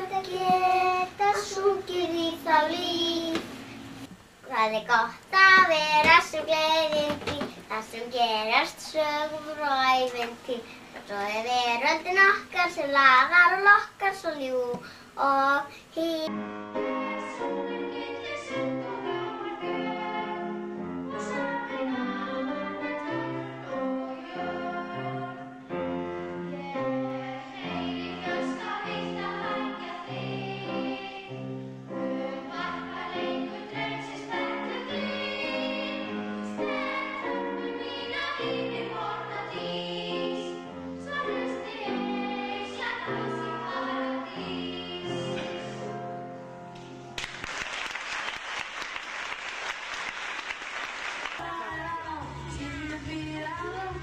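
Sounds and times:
children's choir singing: 0.0s - 3.7s, 16.1s - 46.2s.

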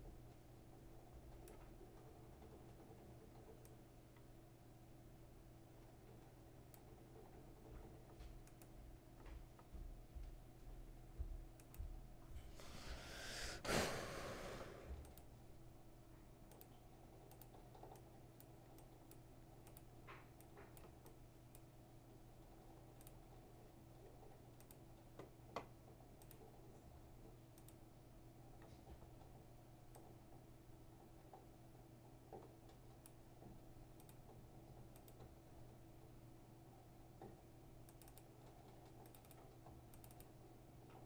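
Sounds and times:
computer mouse clicks: 1.3s - 4.3s, 5.8s - 8.8s, 11.6s - 11.8s, 15.0s - 15.3s, 16.5s - 21.7s, 22.4s - 26.7s, 27.5s - 27.8s, 28.6s - 30.4s, 32.2s - 35.6s, 37.2s - 41.0s
breath noise on microphone: 12.5s - 15.0s.

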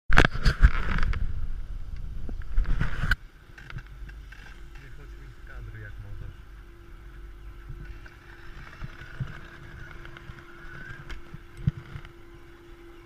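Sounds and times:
steady hum: 0.1s - 13.0s
gear knocking and rustling: 3.5s - 12.2s.

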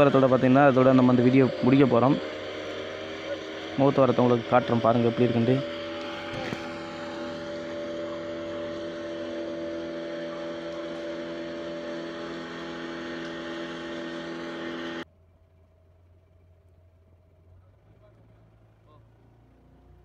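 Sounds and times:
motorboat engine humming: 0.0s - 15.0s.

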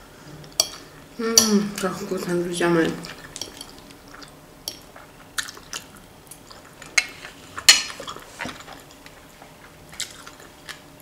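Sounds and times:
person chewing soft food: 3.0s - 11.0s.

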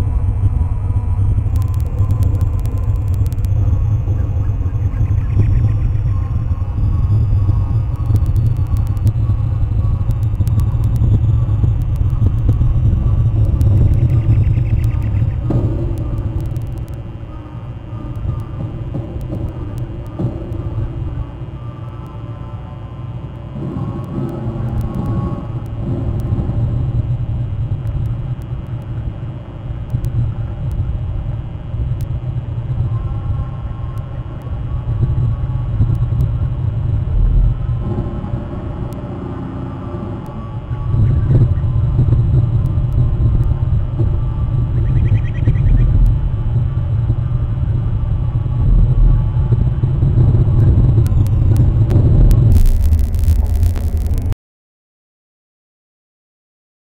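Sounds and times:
faint thin hum: 0.0s - 54.4s
loud low rumble: 0.0s - 54.4s
faint high ticks: 1.2s - 17.1s, 51.0s - 54.4s.

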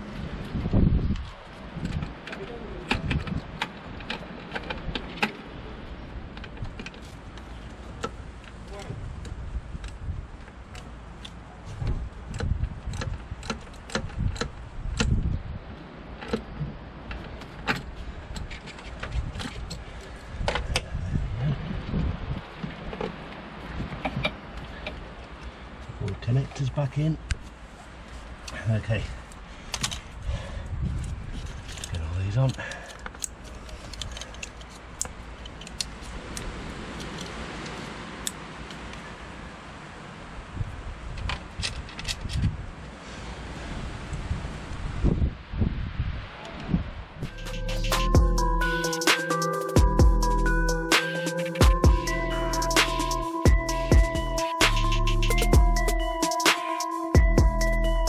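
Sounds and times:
engine parts clicking and rattling: 1.1s - 5.5s, 6.2s - 15.3s, 16.1s - 21.0s, 31.0s - 36.4s
steady background hiss: 56.0s - 57.2s.

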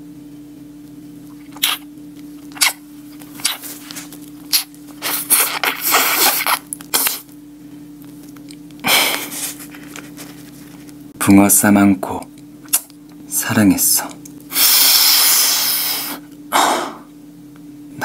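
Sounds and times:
faint steady hum: 0.0s - 18.0s
wet lip smacks and slurping: 1.3s - 7.3s, 12.6s - 13.0s.

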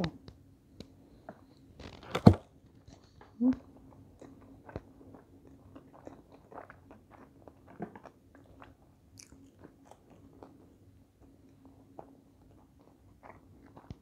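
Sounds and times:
chewing with wet mouth clicks: 2.9s - 14.0s.

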